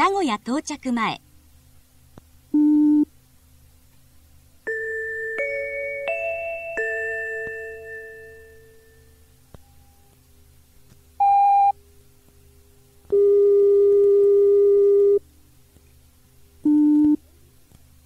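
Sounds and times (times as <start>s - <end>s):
faint low tape hum: 0.0s - 18.0s.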